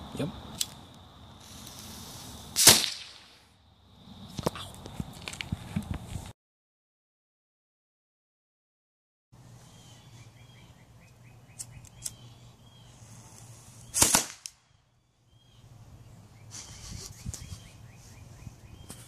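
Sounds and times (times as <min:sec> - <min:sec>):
burning fuse hissing: 0:00.6 - 0:03.5, 0:12.9 - 0:14.5
cannon shot: 0:02.6 - 0:03.4, 0:14.0 - 0:14.5.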